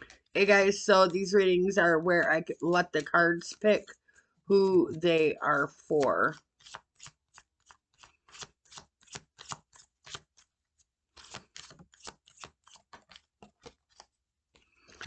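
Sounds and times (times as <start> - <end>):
cards being shuffled: 6.2 - 15.0.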